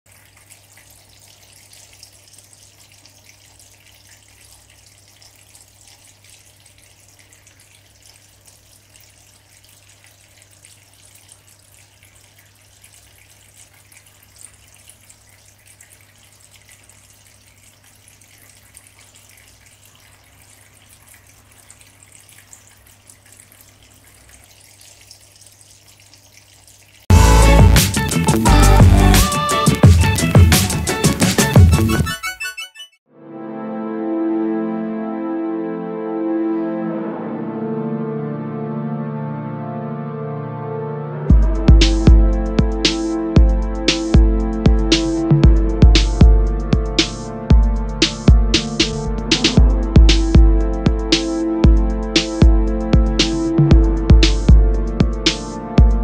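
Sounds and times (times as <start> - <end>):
fountain water trickling: 0.1 - 31.7.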